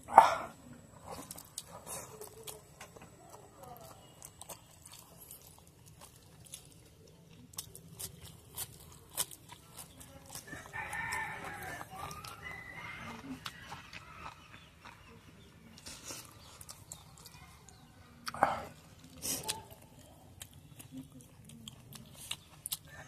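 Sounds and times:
mouth chewing noodles: 0.0 - 23.0
rooster crowing: 10.5 - 13.8.

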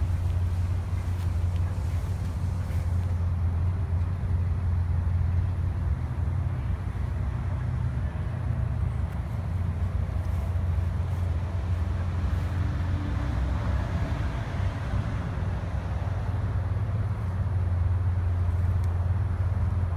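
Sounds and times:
broad hiss: 0.0 - 3.6
low outdoor rumble: 0.0 - 19.9.

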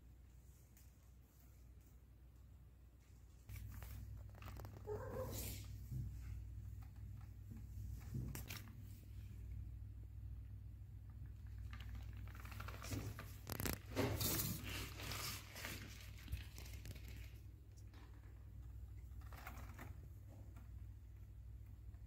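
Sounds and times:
rustling handling noise: 3.0 - 9.4, 11.2 - 20.8.

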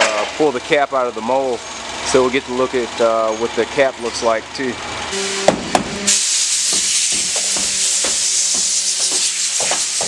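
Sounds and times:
compressed air hissing from air gun: 5.2 - 10.0
sharp knocks: 5.4 - 6.1, 6.7 - 10.0.

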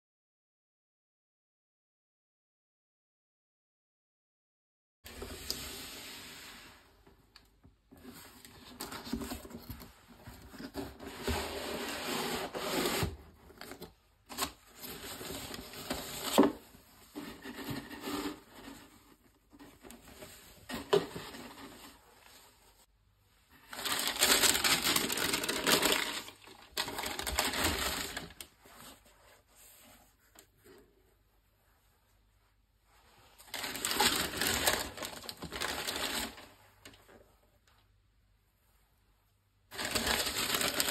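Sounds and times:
cardboard scraping: 7.9 - 22.9, 23.6 - 31.0, 33.3 - 37.3, 39.7 - 40.9
tissue paper rustling: 8.0 - 37.4, 39.7 - 40.9.

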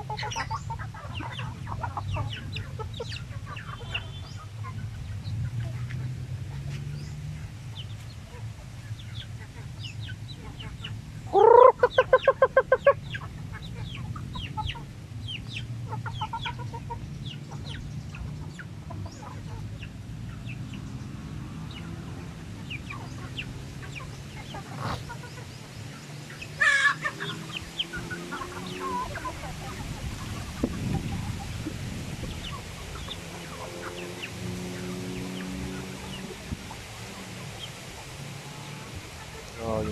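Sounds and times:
chickens clucking: 0.0 - 39.9
chicken squawk: 11.3 - 14.9, 23.8 - 25.4, 26.6 - 31.6.

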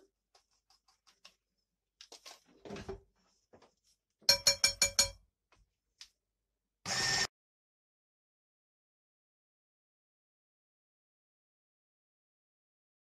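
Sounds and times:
clinks against glass bowl: 4.3 - 5.2
electric hand mixer buzzing: 6.9 - 7.3.

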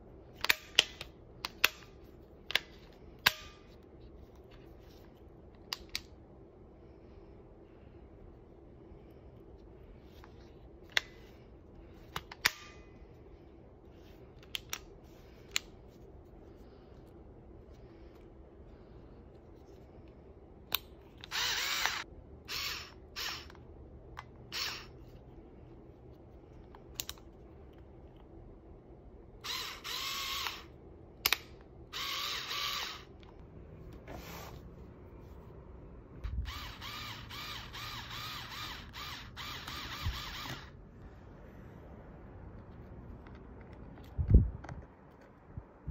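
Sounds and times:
electric screwdriver motor whirring: 21.2 - 23.6, 24.5 - 24.9, 29.4 - 30.7, 32.0 - 33.1, 36.3 - 40.8.

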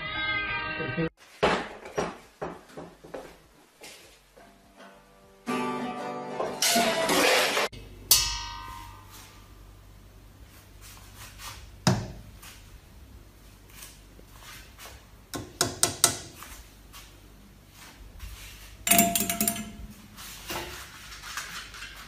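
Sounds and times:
knocks and clicks on hard surface: 15.4 - 16.3.

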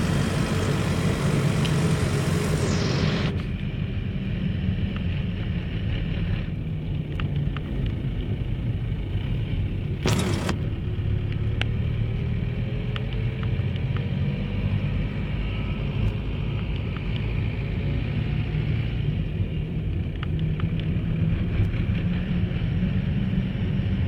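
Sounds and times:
loud burst of noise: 0.0 - 3.6
vehicle engine running: 0.0 - 13.7
tyre and road noise: 0.0 - 24.0.

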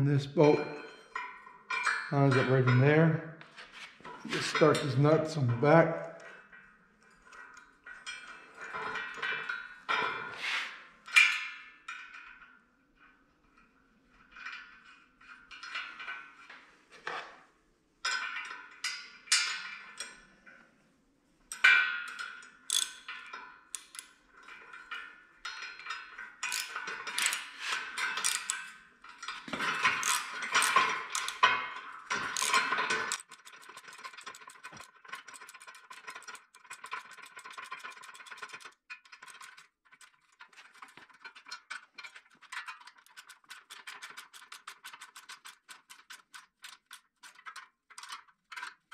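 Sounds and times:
metal parts clinking and knocking: 0.4 - 3.0, 21.5 - 48.9
ratchet wrench clicking: 22.7 - 23.0, 26.5 - 27.5, 28.2 - 28.6, 30.0 - 31.4, 32.3 - 39.6.

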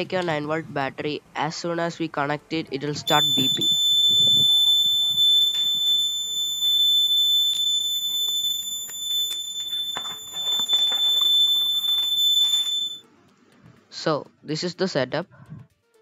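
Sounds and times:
high-pitched buzzer tone: 3.1 - 13.0.

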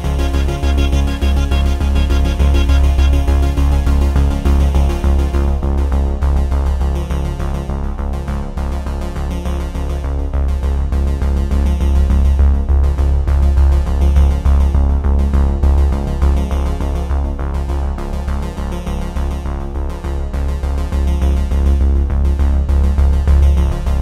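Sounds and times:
electronic synthesizer music: 0.0 - 5.8.

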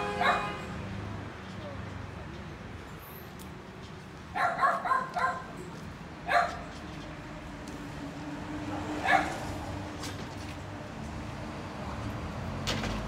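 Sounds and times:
dog yipping barks: 0.2 - 0.5, 4.3 - 5.5, 6.2 - 6.7, 9.0 - 9.4.

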